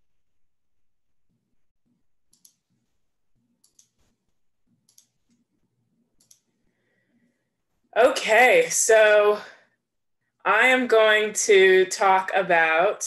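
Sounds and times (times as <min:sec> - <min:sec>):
computer mouse clicks: 0:02.3 - 0:02.9, 0:03.6 - 0:04.2, 0:04.8 - 0:05.5, 0:06.2 - 0:06.6.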